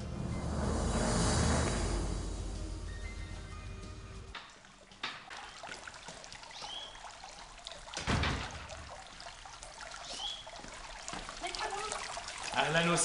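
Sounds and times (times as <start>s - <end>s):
fountain trickling and splashing: 4.4s - 13.0s.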